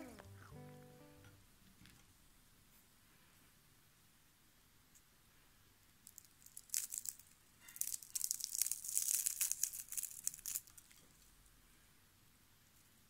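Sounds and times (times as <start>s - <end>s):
fried potato crackling and crunching: 5.8s - 11.3s.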